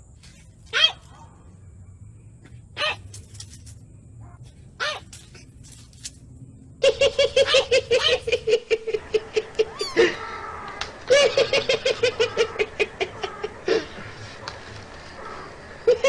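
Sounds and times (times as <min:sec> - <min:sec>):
high-pitched rapid laughter: 0:06.8 - 0:10.2.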